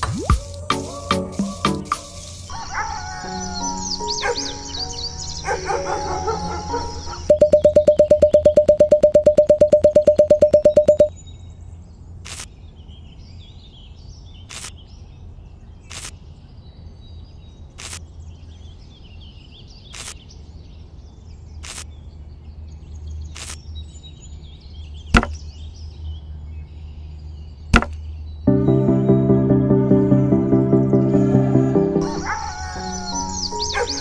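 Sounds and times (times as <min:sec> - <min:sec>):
skewers clicking into sand: 0:12.2 - 0:12.5, 0:14.5 - 0:14.8, 0:15.9 - 0:16.2, 0:17.8 - 0:18.0, 0:19.9 - 0:20.2, 0:21.6 - 0:21.9, 0:23.3 - 0:23.6, 0:27.8 - 0:28.0
louder knock: 0:25.2 - 0:25.4.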